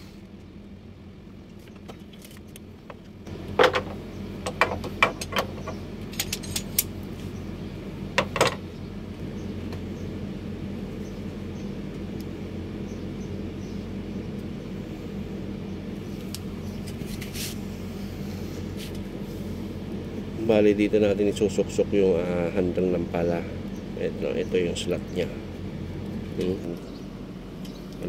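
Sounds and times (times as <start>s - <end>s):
low mechanical hum: 0.0s - 28.0s
short scrape: 17.0s - 17.6s.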